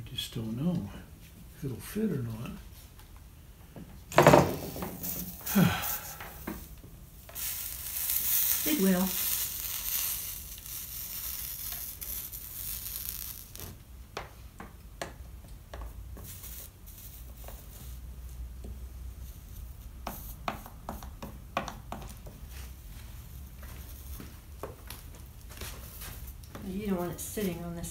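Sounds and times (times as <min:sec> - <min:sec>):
faint hiss: 0:04.4 - 0:13.8, 0:16.2 - 0:21.0.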